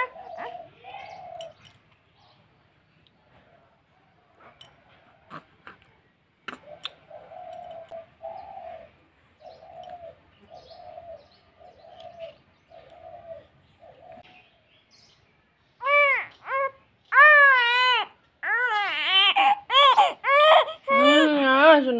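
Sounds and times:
dove cooing: 0:00.0 - 0:01.7, 0:06.5 - 0:14.4.

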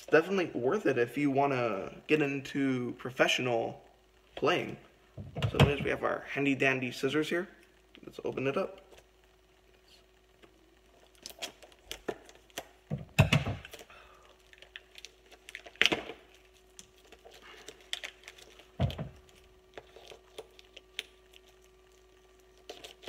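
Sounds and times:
faint steady hum: 0:00.0 - 0:23.0
plastic packaging clicks and cracks: 0:11.1 - 0:23.0.

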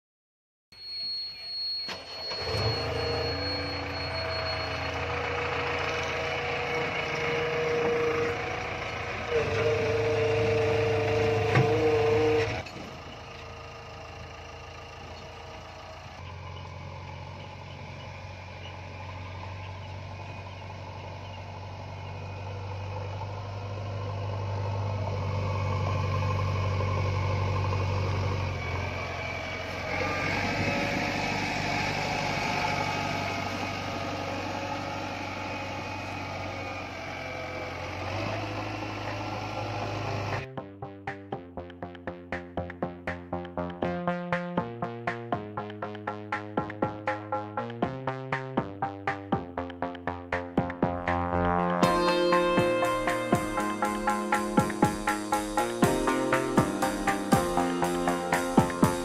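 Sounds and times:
diesel engine running: 0:01.2 - 0:59.0
steady whine: 0:51.2 - 0:59.0.

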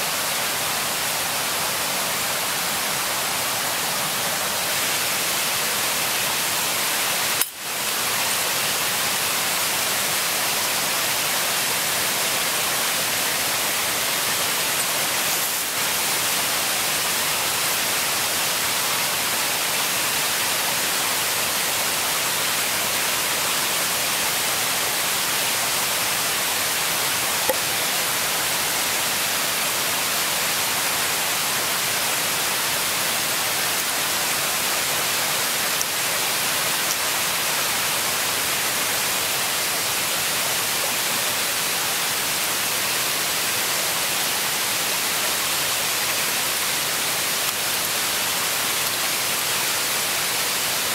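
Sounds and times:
running water rushing: 0:00.0 - 0:50.9.

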